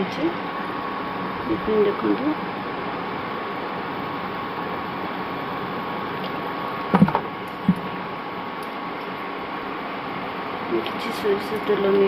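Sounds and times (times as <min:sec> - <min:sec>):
fan hiss with faint whine: 0:00.0 - 0:12.0
short knocks: 0:06.9 - 0:07.9.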